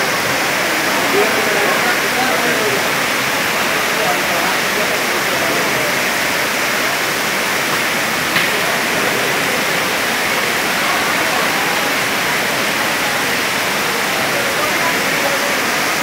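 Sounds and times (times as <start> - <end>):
heavy rain on standing water: 0.0 - 16.0.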